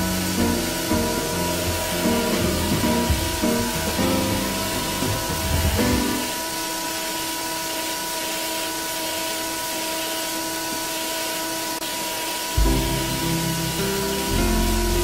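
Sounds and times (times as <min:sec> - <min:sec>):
music: 0:00.0 - 0:06.4, 0:12.6 - 0:15.0
belt grinder running: 0:00.0 - 0:11.5.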